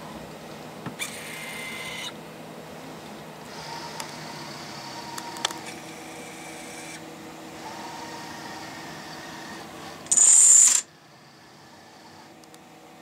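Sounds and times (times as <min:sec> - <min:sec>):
robotic arm servo whine: 0:01.0 - 0:02.2, 0:07.6 - 0:12.3.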